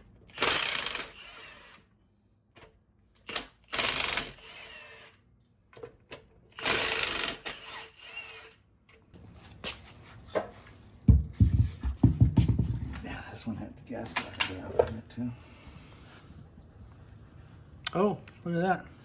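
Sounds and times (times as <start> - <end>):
cordless power tool bursts: 0.3 - 1.8, 3.3 - 5.2, 6.6 - 8.5.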